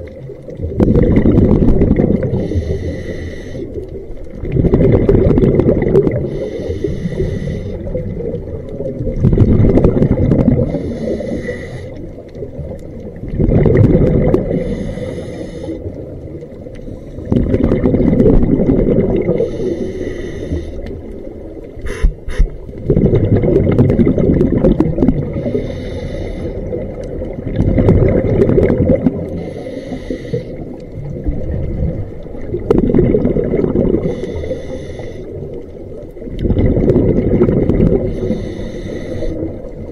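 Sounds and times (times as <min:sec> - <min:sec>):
bubbling exhale: 0:00.5 - 0:39.9
regulator inhale hissing: 0:02.3 - 0:03.8, 0:06.2 - 0:08.0, 0:10.6 - 0:12.1, 0:14.5 - 0:15.9, 0:16.8 - 0:17.3, 0:19.4 - 0:21.1, 0:21.8 - 0:22.6, 0:25.3 - 0:26.8, 0:29.3 - 0:30.8, 0:34.0 - 0:35.6, 0:38.0 - 0:39.7.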